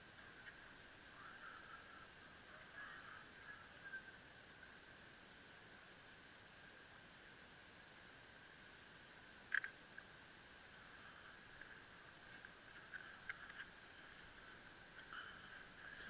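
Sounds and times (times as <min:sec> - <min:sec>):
faint steady hiss: 0:00.0 - 0:16.0
sharp click: 0:09.5 - 0:09.8.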